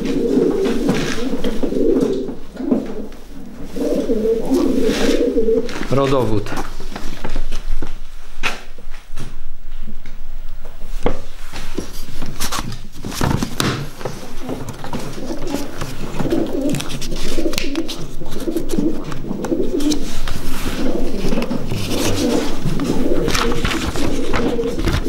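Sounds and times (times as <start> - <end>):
pigeons cooing: 0.0 - 6.3, 13.7 - 25.0
paper rustling: 11.4 - 25.0.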